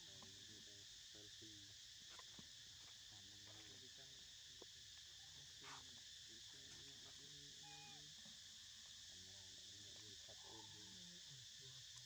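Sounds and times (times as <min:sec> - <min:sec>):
insect chorus buzzing: 0:00.0 - 0:12.0
distant voices talking: 0:03.1 - 0:04.2, 0:05.6 - 0:08.2, 0:09.1 - 0:12.0.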